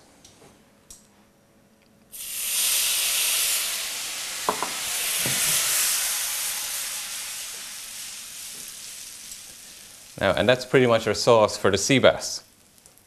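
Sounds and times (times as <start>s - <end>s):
butter sizzling in a frying pan: 2.1s - 11.2s, 12.2s - 13.0s.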